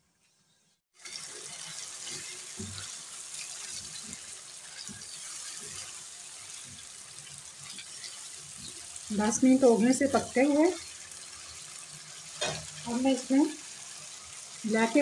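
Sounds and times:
chicken sizzling in hot oil: 0.1s - 15.0s
spatula scraping and knocking pan: 1.6s - 8.8s, 12.2s - 12.8s.

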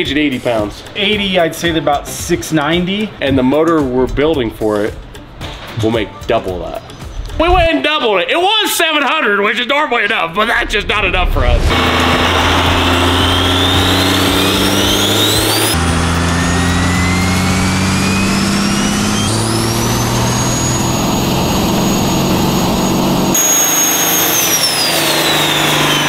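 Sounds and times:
diesel engine at full throttle: 11.0s - 26.0s
turbo whistle: 11.7s - 26.0s.

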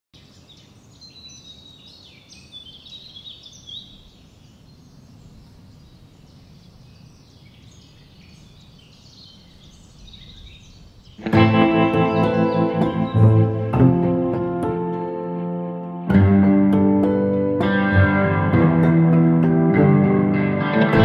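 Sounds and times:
small birds chirping: 0.2s - 14.1s.

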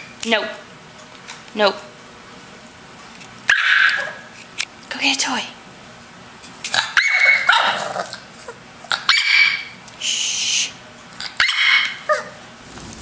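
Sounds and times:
puppy barking and yapping: 3.5s - 4.3s, 6.8s - 8.1s, 9.0s - 9.8s, 11.3s - 12.4s.

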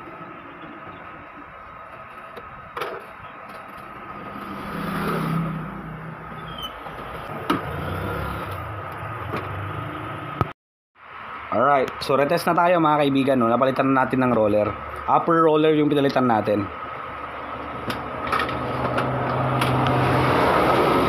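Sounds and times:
vehicle engine passing by: 4.0s - 6.4s, 7.1s - 10.4s, 18.0s - 21.0s.

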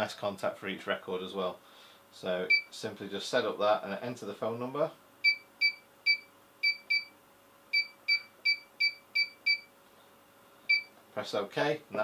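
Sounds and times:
keypad beeping: 7.8s - 9.7s.

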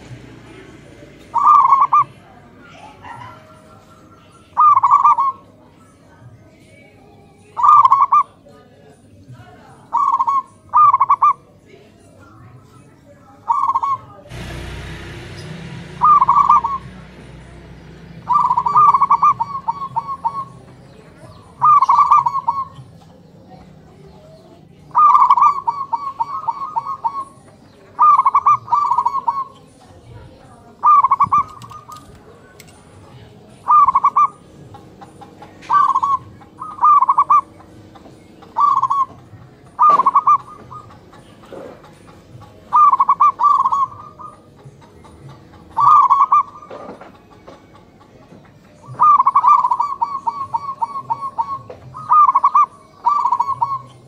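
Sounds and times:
doves cooing: 0.0s - 8.5s, 9.7s - 11.6s, 13.4s - 54.0s
burst of noise: 14.3s - 19.4s.

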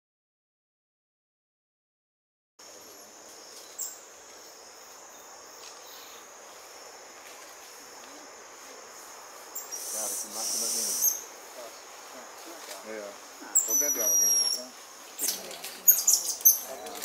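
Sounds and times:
forest insects droning: 2.6s - 17.0s
short low wavering calls: 9.4s - 12.4s, 13.4s - 16.9s.

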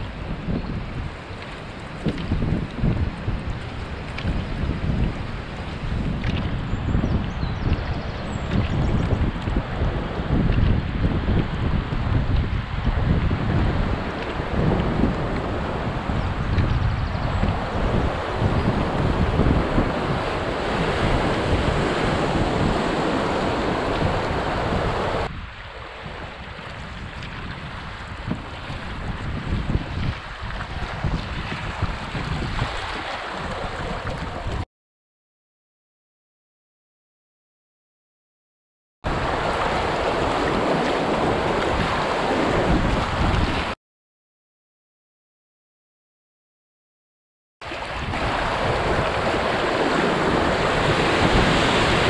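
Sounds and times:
wind buffeting microphone: 0.0s - 34.6s, 39.1s - 43.8s, 47.7s - 52.0s
river rapid rushing: 17.6s - 25.9s, 39.1s - 43.7s, 47.6s - 52.0s
light water splashes: 30.1s - 34.6s.

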